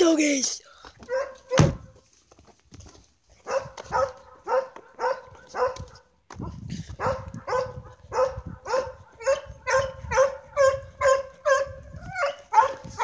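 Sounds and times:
dog barking: 1.1 - 1.8, 3.4 - 6.1, 7.0 - 13.0.

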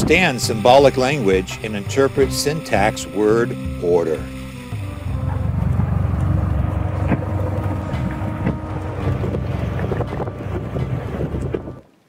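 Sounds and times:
low rumble: 4.2 - 11.8
wind buffeting microphone: 5.0 - 11.9.

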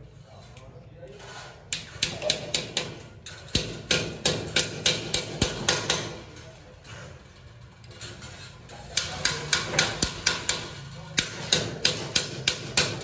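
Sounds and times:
hammer tapping steel channel: 9.0 - 13.0.

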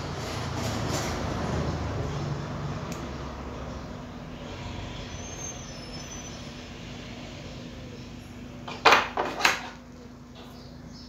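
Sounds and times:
faint hum: 2.0 - 11.0
metal tools clattering on workbench: 8.7 - 9.8.

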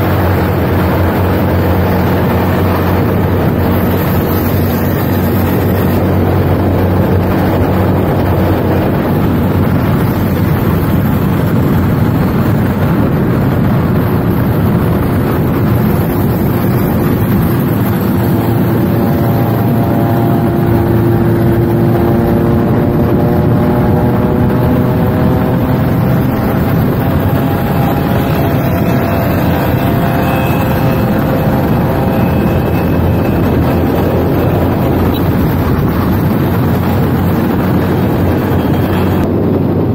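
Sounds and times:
motorcycle engine running: 0.0 - 39.9
wind noise on microphone: 0.0 - 39.9.

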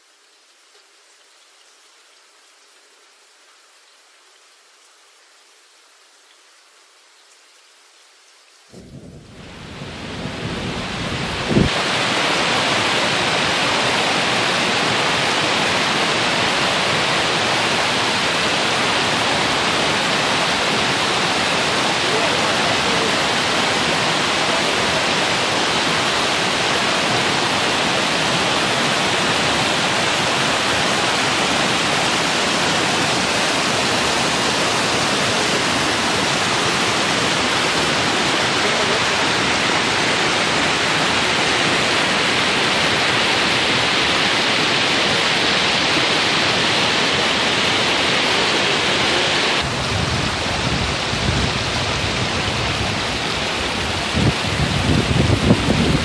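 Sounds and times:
wind on the microphone: 8.7 - 14.7, 49.6 - 56.0
water rushing over rocks: 8.7 - 56.0.

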